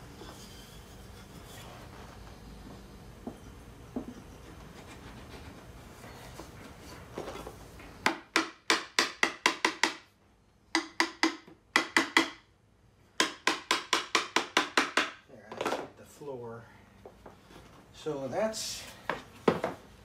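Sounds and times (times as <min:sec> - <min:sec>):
hammer tapping wood joints: 0:08.0 - 0:10.1, 0:10.7 - 0:12.5, 0:13.2 - 0:15.8.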